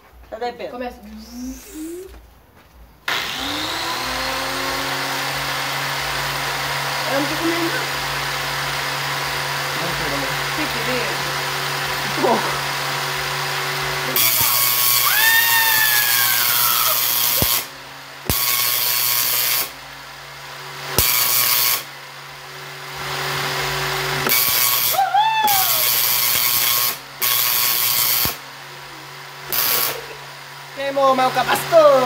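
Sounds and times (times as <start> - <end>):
tesla coil buzzing rasp: 1.0 - 2.2, 3.1 - 8.2, 14.0 - 19.7, 20.9 - 21.9, 24.0 - 28.4, 29.4 - 30.2.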